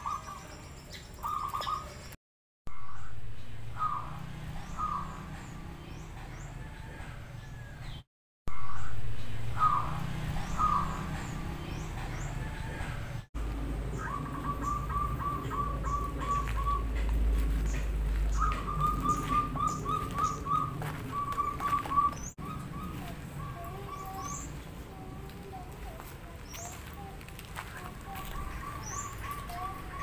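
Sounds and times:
small birds chirping: 0.0 - 2.2, 2.8 - 6.6, 8.6 - 13.2, 13.8 - 30.0
doves cooing: 9.5 - 25.8, 27.8 - 30.0.

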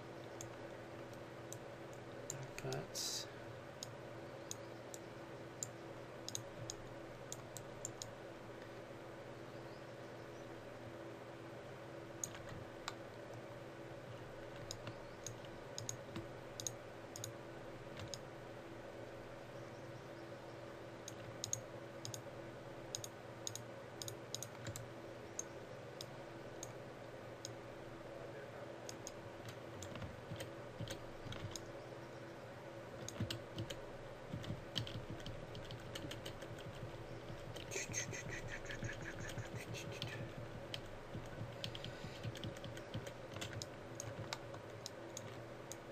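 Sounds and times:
steady low hum: 0.0 - 45.9
computer mouse clicks: 0.3 - 2.8, 3.8 - 8.1, 12.2 - 13.4, 14.5 - 18.2, 21.0 - 22.2, 22.9 - 26.8, 28.9 - 31.7, 33.0 - 45.9
keyboard key presses: 28.9 - 31.7, 33.0 - 45.8.

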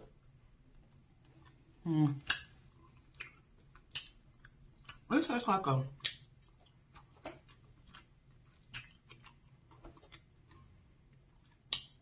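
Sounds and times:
mouth clicks from chewing: 2.2 - 5.1, 6.0 - 10.7, 11.4 - 12.0.

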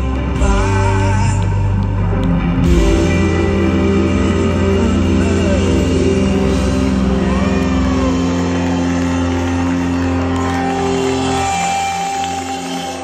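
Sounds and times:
blues-rock band holding a chord: 2.1 - 13.0.

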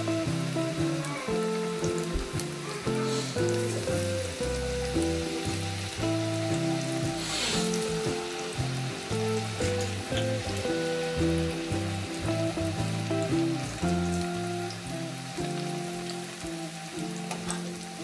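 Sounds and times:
background music: 0.0 - 18.0
plantain sizzling in oil: 0.0 - 18.0.

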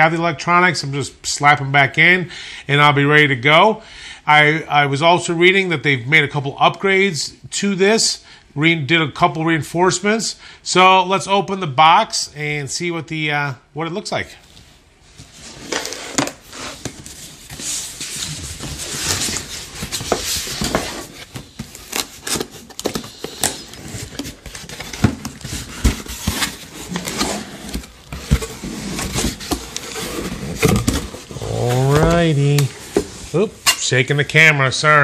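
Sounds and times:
cardboard scraping and rustling: 15.1 - 33.7.

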